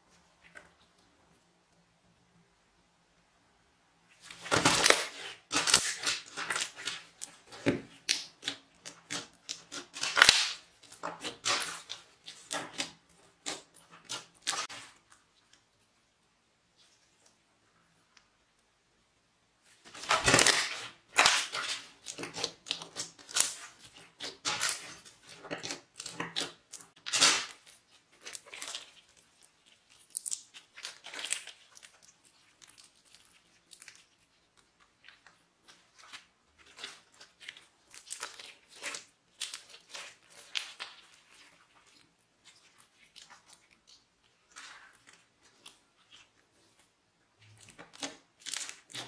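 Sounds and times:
slime crackling and popping: 4.4s - 14.9s, 19.9s - 46.4s, 47.5s - 49.0s.

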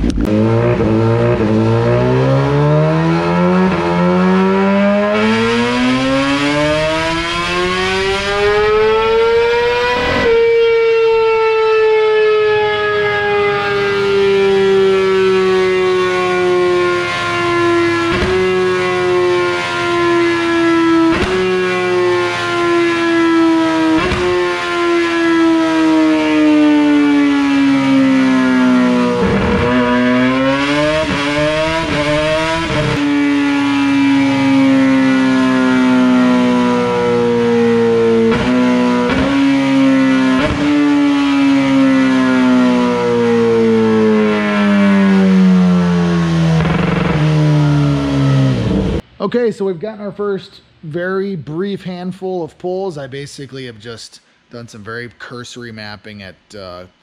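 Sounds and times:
exhaust cracks: 0.0s - 10.5s, 17.5s - 19.2s, 20.9s - 22.2s, 23.9s - 24.8s, 28.0s - 44.4s, 46.1s - 49.0s
motorcycle engine revving on dyno: 0.0s - 49.0s.

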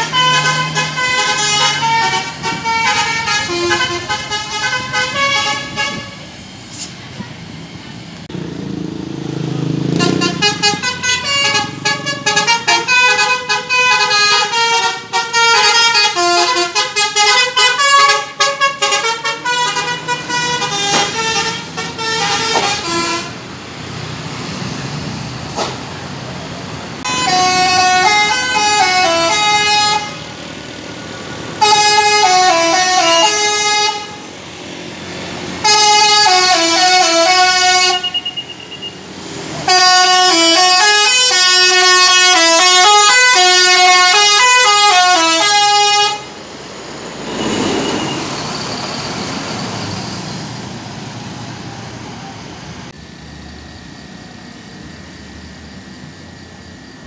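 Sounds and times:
multi-tone bus horn melodies: 0.0s - 6.4s, 9.6s - 23.6s, 27.0s - 46.5s
bus engine: 0.0s - 57.0s
traffic: 0.0s - 57.0s.

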